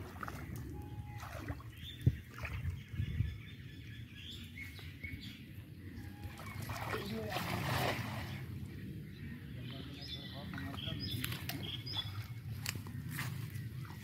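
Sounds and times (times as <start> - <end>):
water sloshing around legs: 0.0 - 3.2, 6.0 - 8.7, 10.5 - 14.0
small birds chirping: 0.2 - 14.0
sharp water splash: 6.4 - 8.4.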